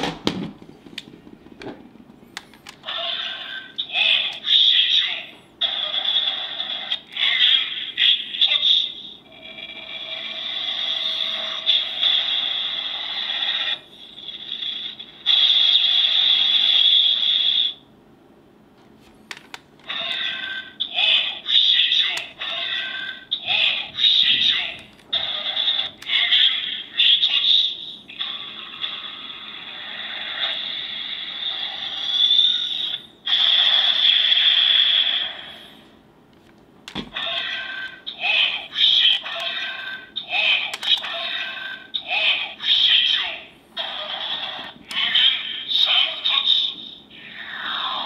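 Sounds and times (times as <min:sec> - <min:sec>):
toy sword electronic sound effect: 0:19.9 - 0:29.0, 0:30.1 - 0:35.4.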